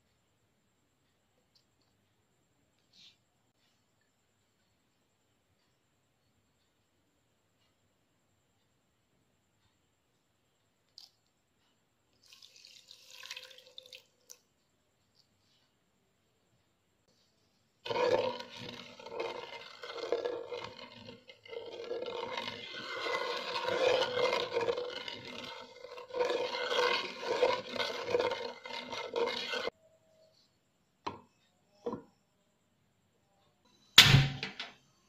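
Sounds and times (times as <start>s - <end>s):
wooden spatula scraping saucepan: 17.8s - 29.8s.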